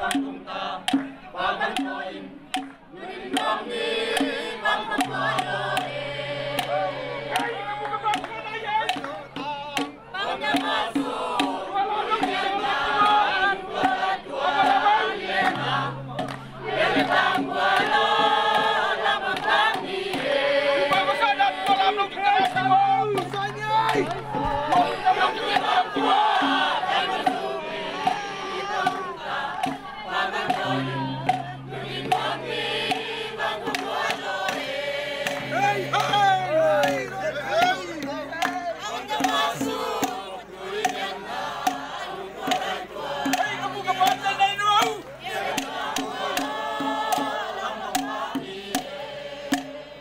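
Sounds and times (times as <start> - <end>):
group singing with beat: 0.0 - 50.0.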